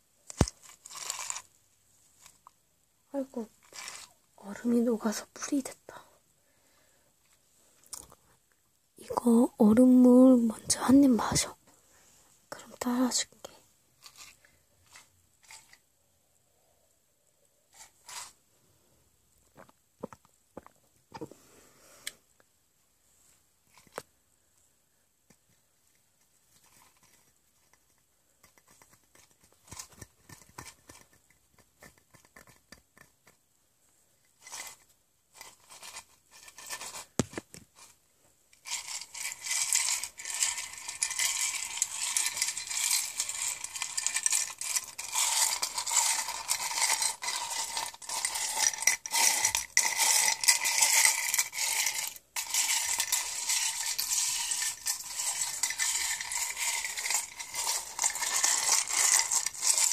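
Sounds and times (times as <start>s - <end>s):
ice cubes clinking in a cup: 0.4s - 1.5s, 38.6s - 59.9s.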